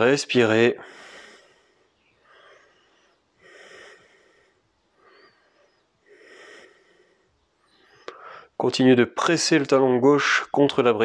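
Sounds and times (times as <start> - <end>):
man breathing: 0.8 - 8.6.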